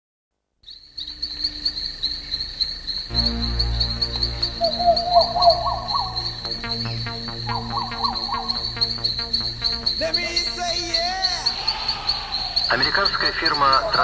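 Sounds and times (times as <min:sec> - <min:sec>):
crickets chirping: 0:00.6 - 0:14.0
pulsing synth melody: 0:01.0 - 0:14.0
deep bass drone: 0:03.1 - 0:13.9.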